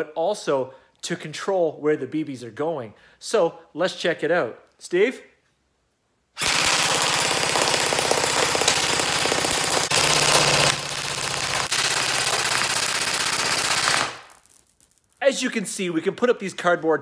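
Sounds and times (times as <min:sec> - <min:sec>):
airsoft rifle full-auto fire: 0:06.4 - 0:14.3
pellets hitting cardboard targets: 0:06.4 - 0:15.2.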